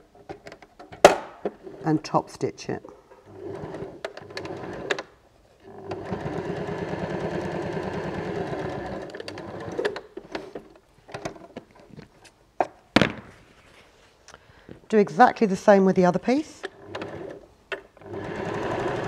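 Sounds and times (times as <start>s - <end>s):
sewing machine stitching: 3.3s - 10.0s, 16.6s - 19.0s.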